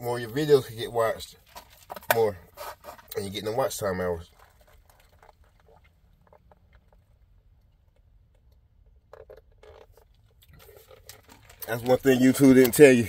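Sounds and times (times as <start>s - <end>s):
drinking through a straw: 9.1s - 12.4s.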